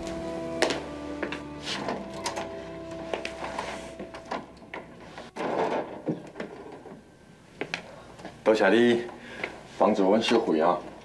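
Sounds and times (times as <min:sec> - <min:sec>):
music: 0:00.0 - 0:05.3
footsteps on hard floor: 0:00.0 - 0:05.4.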